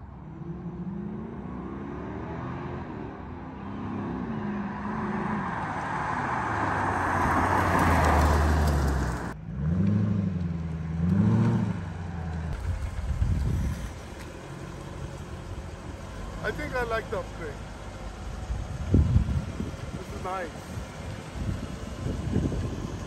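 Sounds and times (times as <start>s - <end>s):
car engine accelerating past: 0.2s - 16.5s.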